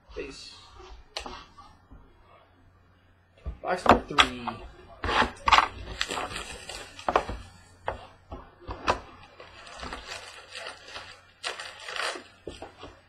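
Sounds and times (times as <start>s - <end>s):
cardboard box and packs rustling: 5.1s - 8.1s, 8.7s - 13.0s.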